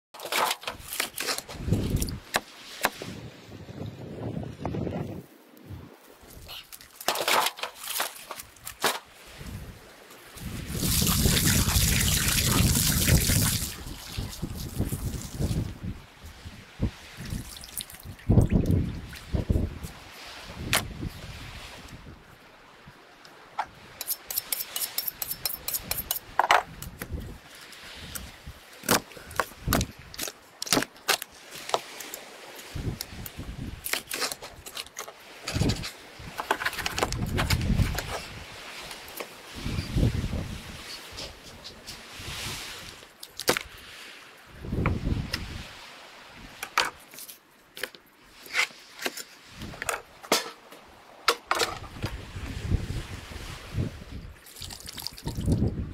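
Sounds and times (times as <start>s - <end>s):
knife blades scraping together: 24.0s - 26.3s.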